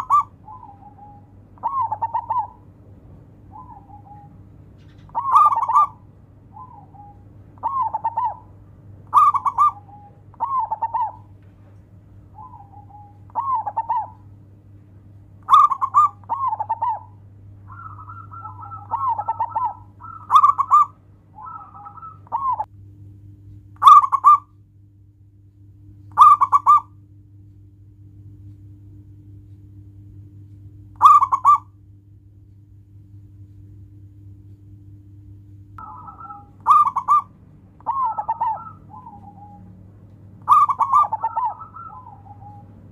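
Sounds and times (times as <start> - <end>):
doves cooing: 0.0 - 14.4, 15.3 - 22.7, 23.8 - 24.5, 26.1 - 27.0, 31.0 - 31.8, 35.8 - 42.9
steady low hum: 0.0 - 42.9.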